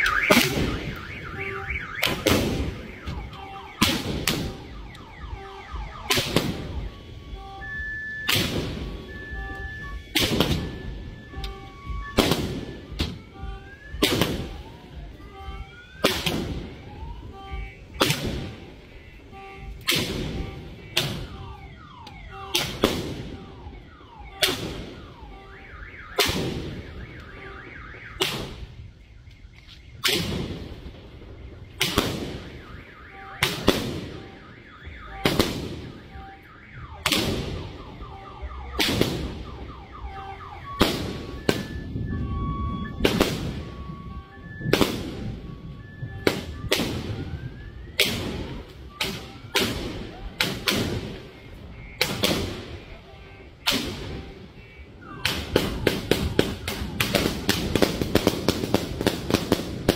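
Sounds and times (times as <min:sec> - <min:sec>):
firework bangs with echo: 0:02.0 - 0:02.9, 0:03.8 - 0:04.6, 0:06.1 - 0:06.9, 0:08.3 - 0:09.0, 0:10.1 - 0:10.9, 0:12.2 - 0:13.2, 0:13.9 - 0:14.6, 0:19.8 - 0:21.4, 0:26.2 - 0:26.8, 0:31.8 - 0:32.6, 0:33.4 - 0:34.2, 0:35.2 - 0:35.9, 0:38.8 - 0:39.4, 0:40.8 - 0:42.0, 0:48.0 - 0:51.3, 0:52.0 - 0:52.8.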